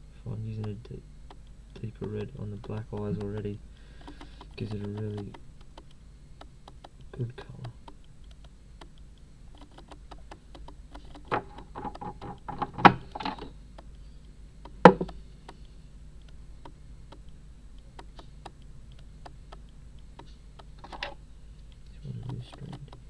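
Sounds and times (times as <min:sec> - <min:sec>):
knocks: 0:09.6 - 0:13.5, 0:14.7 - 0:15.2.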